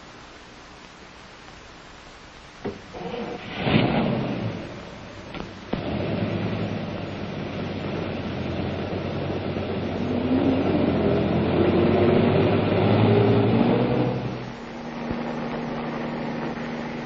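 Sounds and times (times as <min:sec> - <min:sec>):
vehicle engines rumbling: 0:04.0 - 0:17.0.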